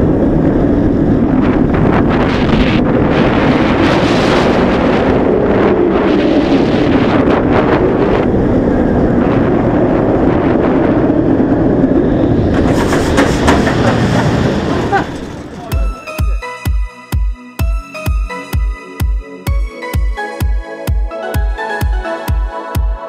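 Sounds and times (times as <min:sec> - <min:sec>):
wind buffeting microphone: 0:00.0 - 0:16.2
roller coaster rumbling on track: 0:00.0 - 0:16.5.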